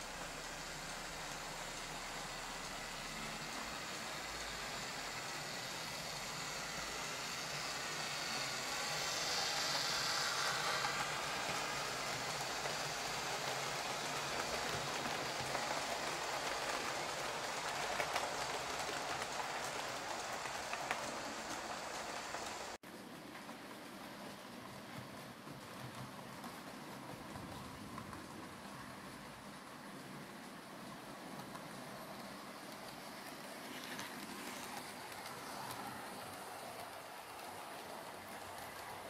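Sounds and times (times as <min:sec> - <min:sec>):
model train motor whir: 0:00.0 - 0:22.8
model train wheels rattling: 0:00.1 - 0:22.8.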